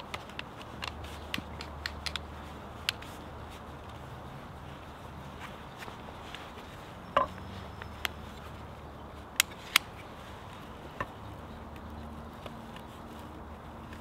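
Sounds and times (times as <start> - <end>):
hand tools clicking: 0.0 - 3.1.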